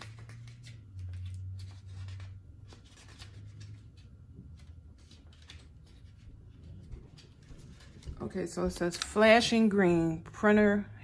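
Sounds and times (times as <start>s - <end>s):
paper rustling: 0.0s - 8.3s.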